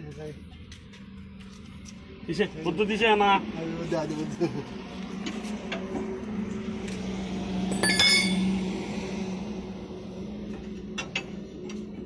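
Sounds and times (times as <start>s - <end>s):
metallic clink: 7.7s - 8.6s.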